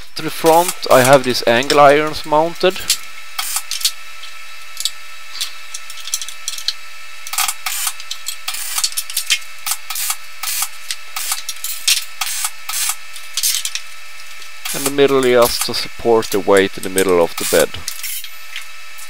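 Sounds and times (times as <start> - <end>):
steady hum: 0.0 - 19.0
steel bars clinking and scraping: 17.9 - 18.6.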